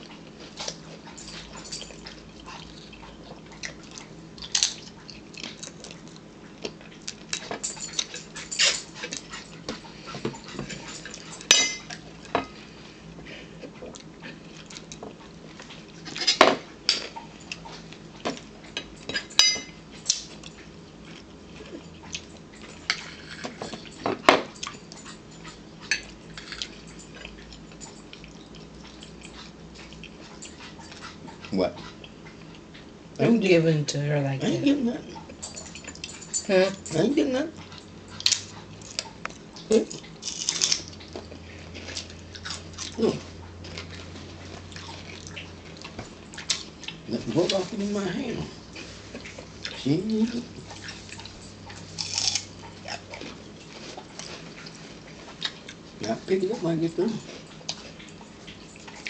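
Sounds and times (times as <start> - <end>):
chewing noises: 0.0 - 33.7, 34.4 - 59.0
cutlery clinking on plates: 10.2 - 12.6, 18.8 - 20.3.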